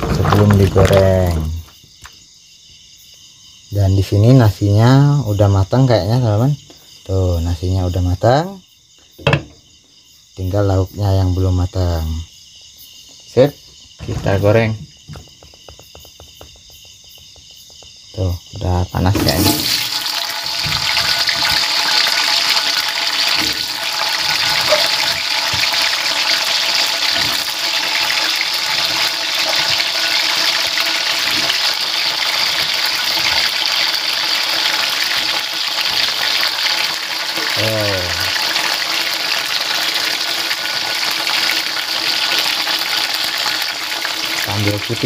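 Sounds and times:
vegetables sizzling in hot oil: 19.1s - 45.0s.

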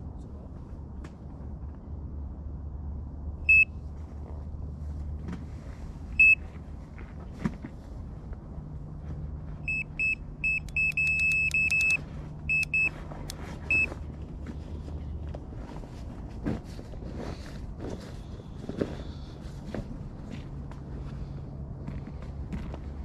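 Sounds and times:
bite alarm beeping: 3.5s - 3.7s, 6.2s - 6.4s, 9.7s - 13.0s.

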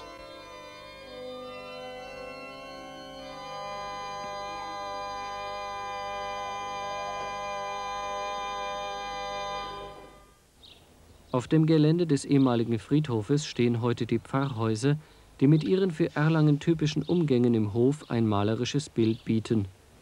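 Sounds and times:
pipe organ chord: 0.0s - 10.4s.

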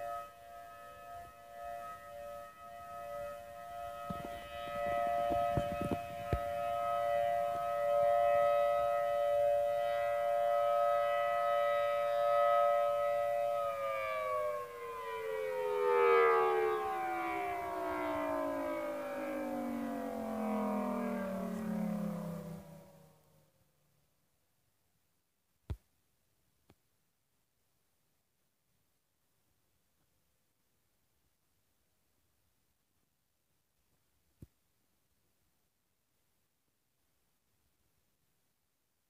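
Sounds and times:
dual-tone warning siren: 0.0s - 23.6s.

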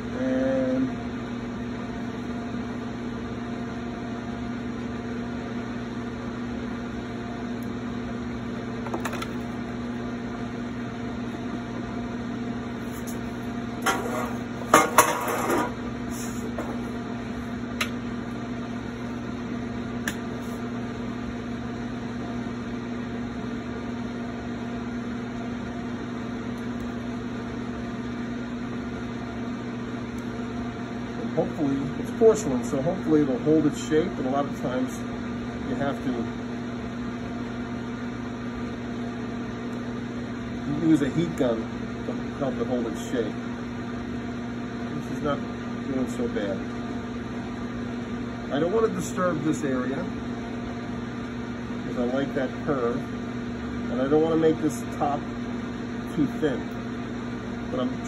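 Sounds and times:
pottery wheel motor hum: 0.0s - 58.0s
clatter of hard tools: 13.8s - 15.8s.

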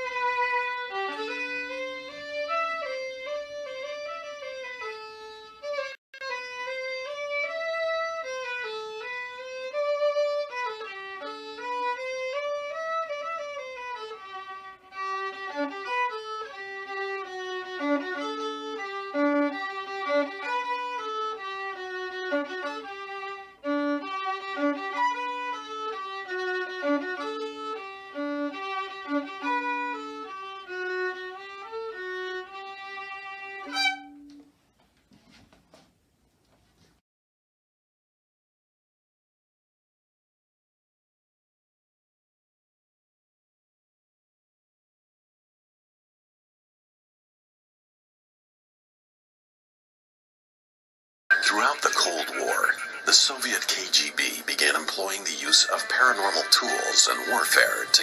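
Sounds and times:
solo violin playing a waltz: 0.0s - 34.5s, 51.3s - 58.0s.

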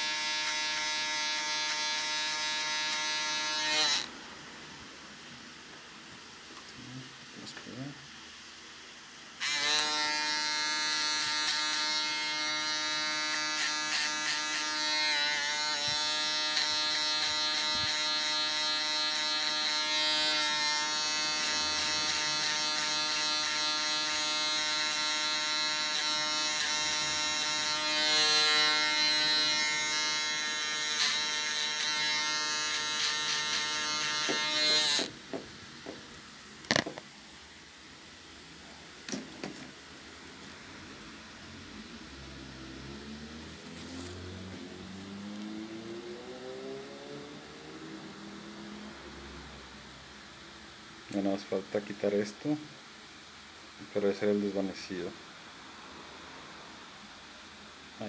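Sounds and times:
electric shaver humming: 0.0s - 4.1s, 9.4s - 35.2s.

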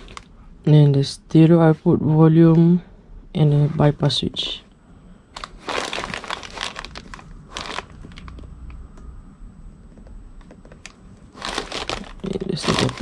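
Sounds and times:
plastic packaging crinkling: 0.0s - 0.3s, 5.4s - 8.5s, 10.7s - 13.0s.

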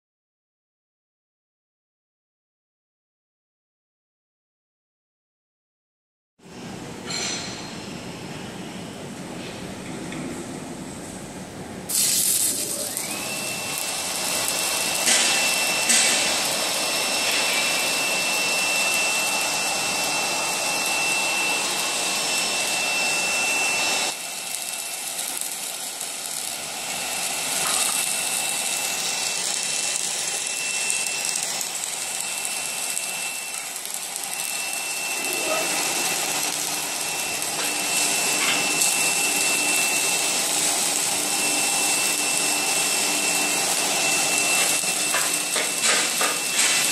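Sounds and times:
welding machine hiss and hum: 6.5s - 46.9s
high whine: 12.5s - 24.2s, 26.6s - 46.9s.

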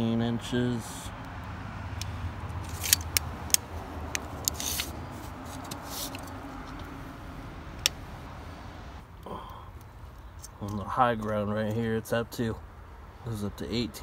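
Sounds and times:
steady low rumble: 0.0s - 12.7s
tape measure clicks and scraping: 2.6s - 6.9s.

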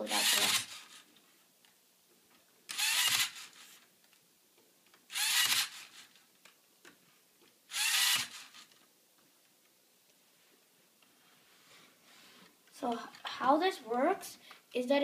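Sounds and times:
servo motor whirring: 0.1s - 1.0s, 2.7s - 3.8s, 5.1s - 6.2s, 7.7s - 8.7s.

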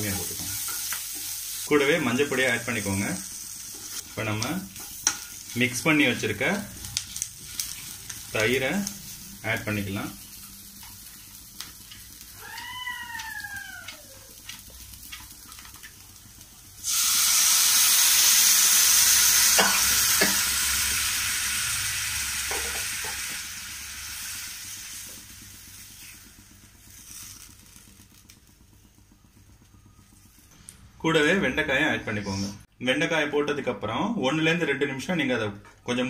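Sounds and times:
loud sizzle of liquid in pan: 0.0s - 30.5s
onions frying in oil: 0.0s - 31.9s
utensils knocking on pan: 22.4s - 23.3s.

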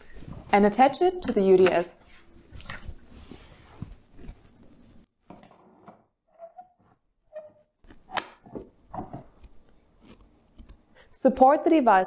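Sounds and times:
faint handling sounds: 1.7s - 5.1s.

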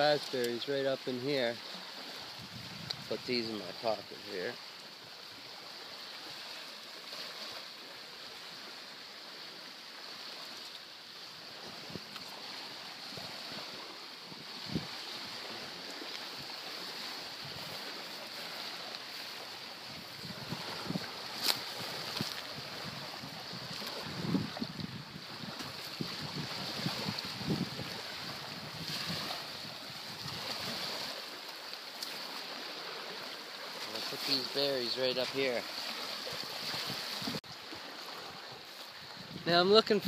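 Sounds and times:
surf: 0.0s - 40.0s
wind: 0.0s - 40.0s
wind buffeting microphone: 2.3s - 3.3s, 13.0s - 15.8s, 19.8s - 31.0s, 36.2s - 38.4s, 39.0s - 40.0s.

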